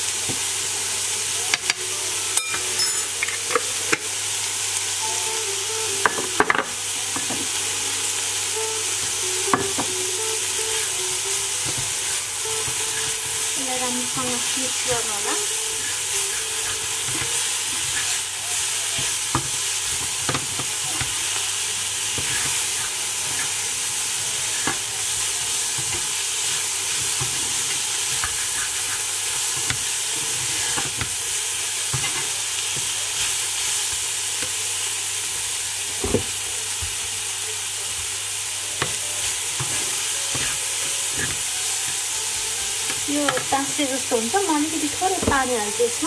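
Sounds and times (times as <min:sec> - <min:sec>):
vegetables sizzling in a pan: 0:00.0 - 0:46.0
spatula scraping a pan: 0:22.1 - 0:23.7, 0:25.7 - 0:31.0.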